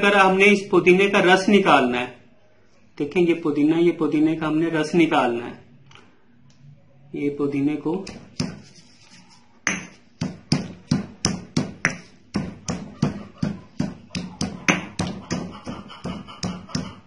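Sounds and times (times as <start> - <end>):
pestle pounding in a mortar: 9.7 - 17.0.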